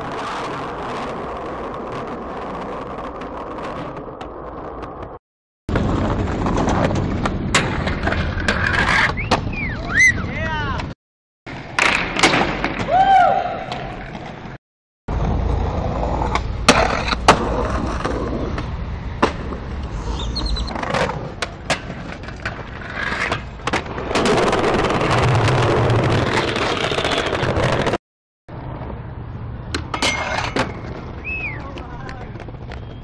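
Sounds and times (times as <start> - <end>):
skateboard wheels rolling on concrete: 0.0 - 33.0
skateboard landing clacks: 11.7 - 12.9
skateboard tail pops: 11.7 - 13.0.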